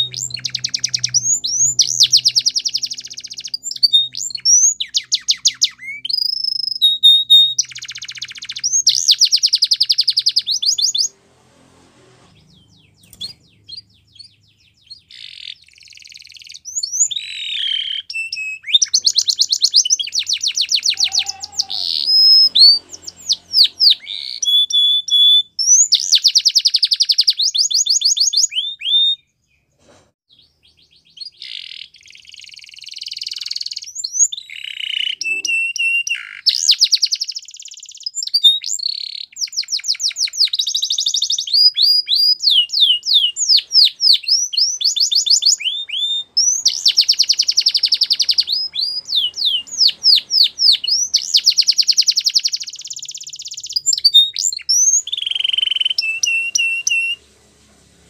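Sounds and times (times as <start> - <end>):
canary singing trills: 0.0 - 11.2, 12.3 - 29.7, 30.3 - 57.2.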